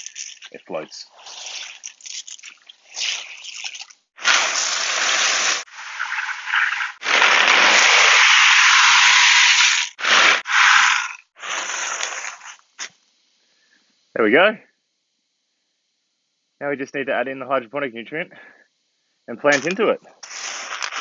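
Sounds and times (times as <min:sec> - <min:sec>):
clay pebbles pouring into water: 0:00.0 - 0:06.2, 0:07.0 - 0:12.4, 0:19.6 - 0:21.0
wet pebbles stirred by hand: 0:00.0 - 0:12.6, 0:19.5 - 0:21.0.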